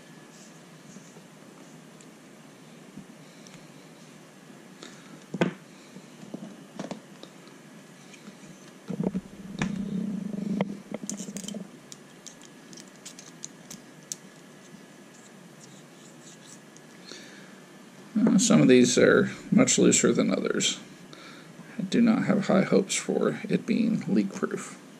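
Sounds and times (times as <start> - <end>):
low rubbing: 9.0 - 13.4
small parts clicking and tapping: 11.0 - 17.0.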